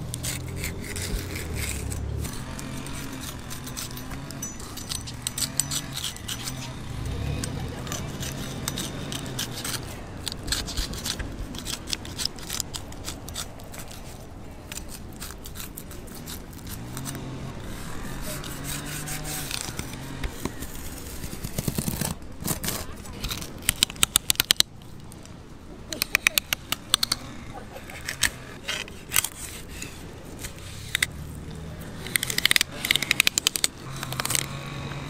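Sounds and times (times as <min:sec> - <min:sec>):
knife scraping over fish bones: 0:00.0 - 0:24.6.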